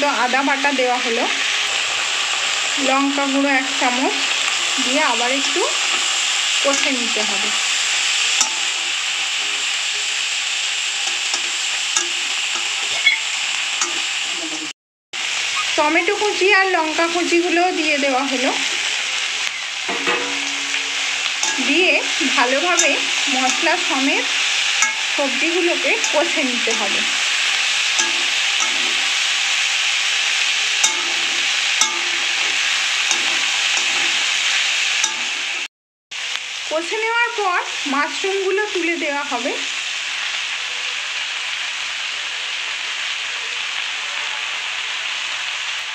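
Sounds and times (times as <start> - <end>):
vegetables sizzling in hot oil: 0.0 - 45.9
metal spatula scraping a pan: 3.8 - 14.7, 18.4 - 35.7.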